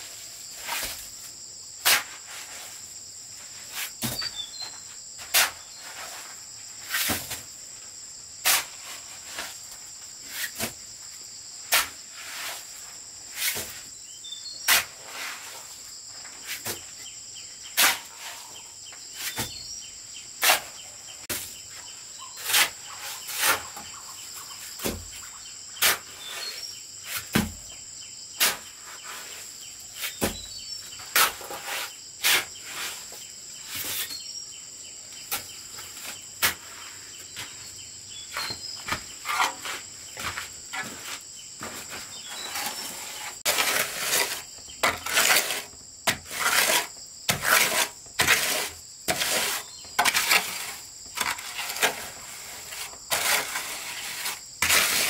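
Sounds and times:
insects droning: 0.0s - 55.0s
scraping strokes: 20.4s - 24.7s, 31.0s - 34.2s, 38.3s - 55.0s.

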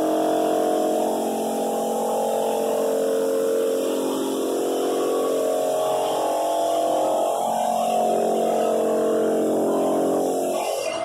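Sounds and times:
shop vacuum motor running: 0.0s - 11.0s.

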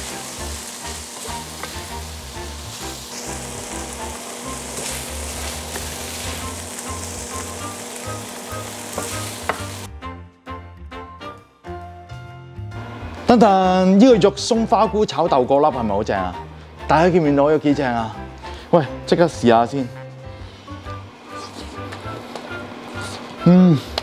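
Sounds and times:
food sizzling in a frying pan: 0.0s - 9.9s
background music: 0.0s - 24.0s.

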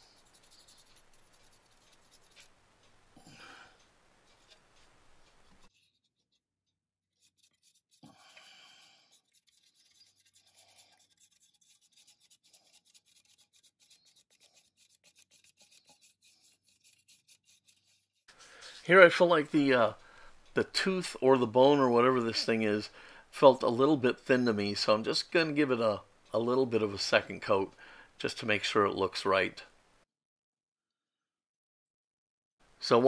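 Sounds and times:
paintbrush scratching on plastic: 0.0s - 2.5s, 5.2s - 18.3s.

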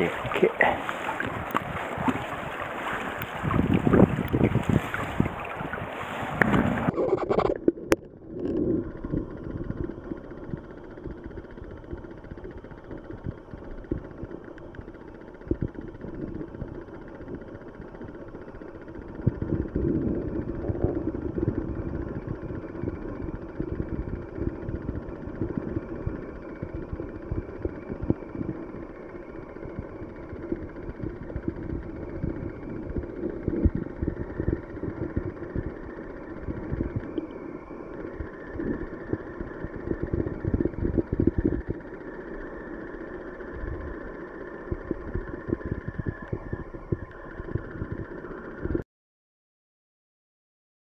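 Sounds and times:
river water rushing and splashing: 0.0s - 7.0s
muffled underwater stream rushing: 0.0s - 48.8s.

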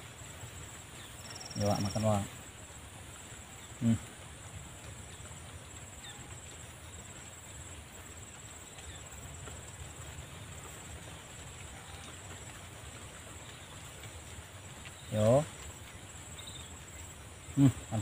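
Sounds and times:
high-pitched insect drone: 1.2s - 2.3s.

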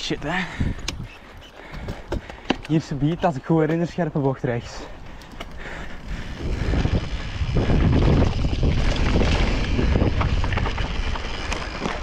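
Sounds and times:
wind buffeting microphone: 0.0s - 2.4s, 5.5s - 12.0s
bike clicks and rattles: 0.0s - 12.0s
bike tyre rumble: 0.0s - 12.0s.

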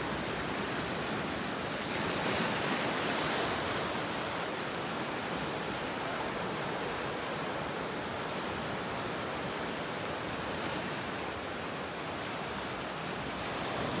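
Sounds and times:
surf washing over rocks: 0.0s - 14.0s.

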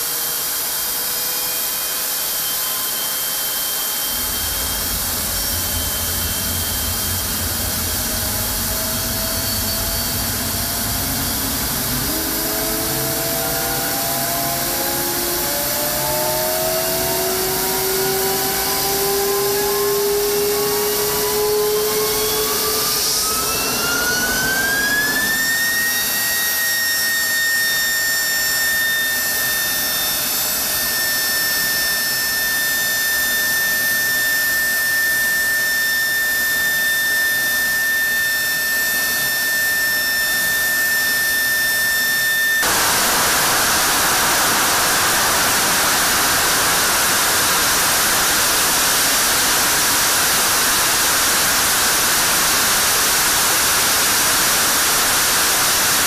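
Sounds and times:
jet engine whine: 0.0s - 56.0s
afterburner roar: 4.1s - 25.9s, 42.6s - 51.9s.

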